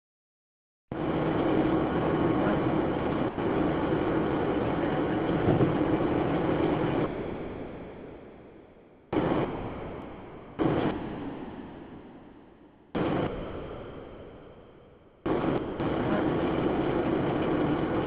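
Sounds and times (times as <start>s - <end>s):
rolling thunder: 5.3s - 6.4s.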